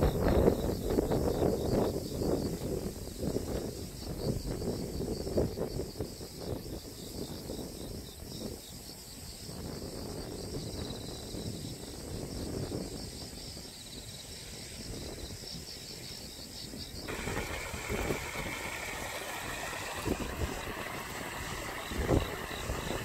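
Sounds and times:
insects chirping: 0.0s - 23.0s
floodwater rushing through a ditch: 17.1s - 23.0s
low outdoor rumble: 17.1s - 23.0s.

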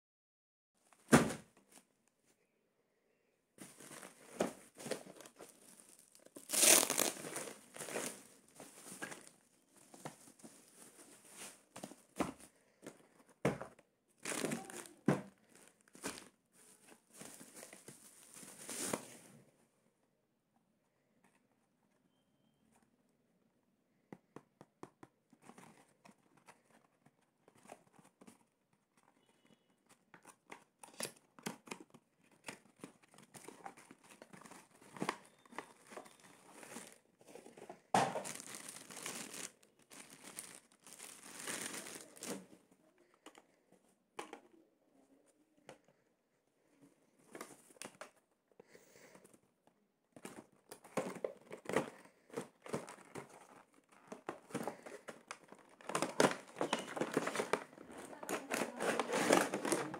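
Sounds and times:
cardboard boxes rustling and clicking: 3.6s - 14.5s, 29.9s - 42.5s, 50.1s - 59.9s
plastic bag crinkling: 5.1s - 9.4s, 38.0s - 42.5s, 54.7s - 59.9s.

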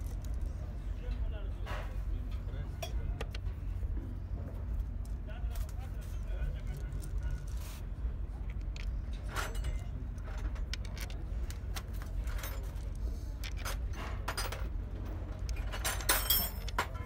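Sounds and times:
steel bolts clinking: 15.4s - 17.0s.

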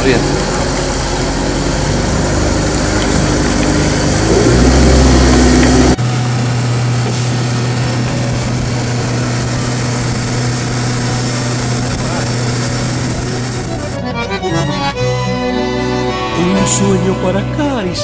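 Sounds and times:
wind and water rushing: 0.0s - 14.0s
outboard motor running: 0.0s - 17.9s.

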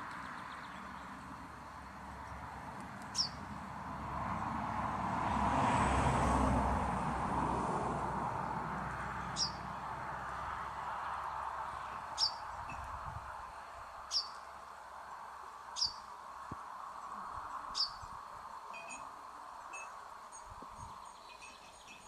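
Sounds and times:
chaffinch calls: 3.1s - 3.4s, 9.2s - 9.7s, 11.8s - 12.5s, 14.0s - 14.4s, 15.7s - 16.1s, 17.7s - 18.1s.

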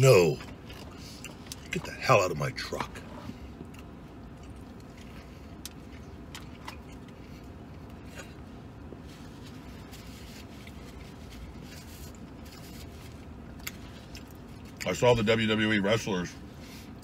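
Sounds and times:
steady low hum: 0.0s - 17.0s
man chewing: 0.4s - 1.7s, 3.2s - 14.8s.

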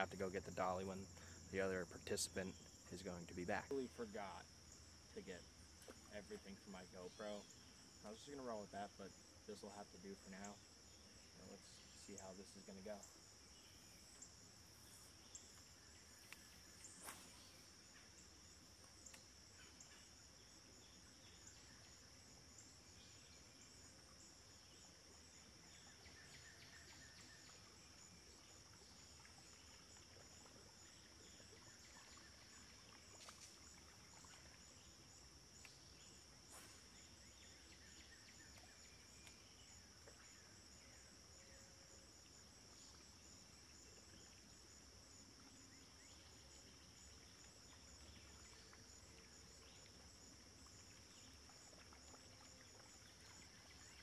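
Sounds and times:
high-pitched insect chorus: 0.0s - 54.0s.

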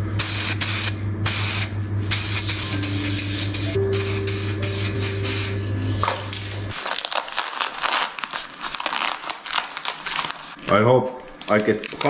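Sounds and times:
spray paint hissing bursts: 0.2s - 5.6s
low hum: 1.8s - 6.8s.

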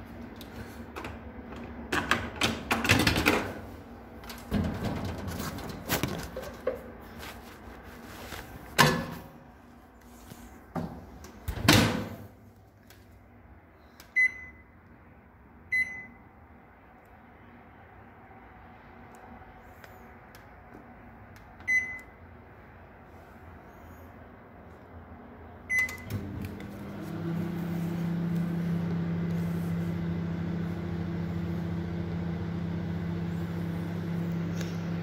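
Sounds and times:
microwave keypad beeps: 14.2s - 14.7s, 15.7s - 16.2s, 21.6s - 22.1s, 25.7s - 26.2s.

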